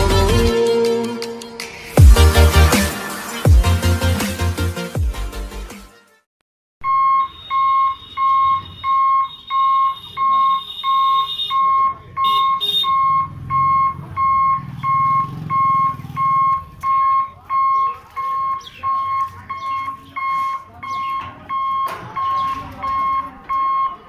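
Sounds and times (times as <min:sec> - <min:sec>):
level crossing buzzer beeping: 0:06.8 - 0:24.0.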